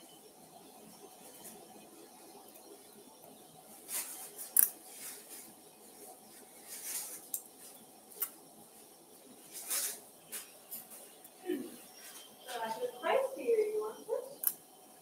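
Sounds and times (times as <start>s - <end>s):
soft rustles: 3.8s - 7.8s, 9.4s - 11.2s.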